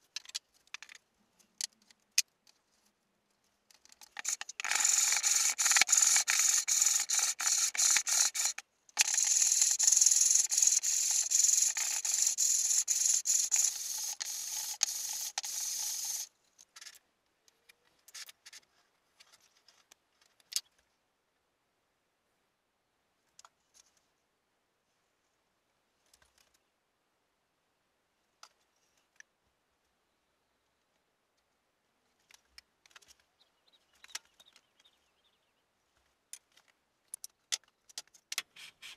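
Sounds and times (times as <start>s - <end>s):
box sanding strokes: 4.2s - 16.3s.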